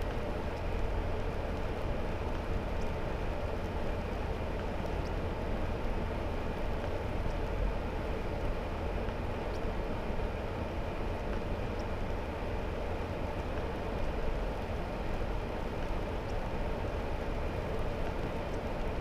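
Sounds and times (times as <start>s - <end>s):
engine and road drone: 0.0s - 19.0s.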